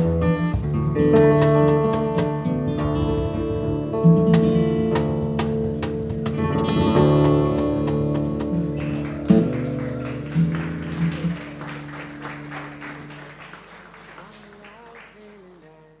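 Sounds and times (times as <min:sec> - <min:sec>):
acoustic guitar chord ringing: 0:00.0 - 0:13.6
audience applauding: 0:08.2 - 0:16.0.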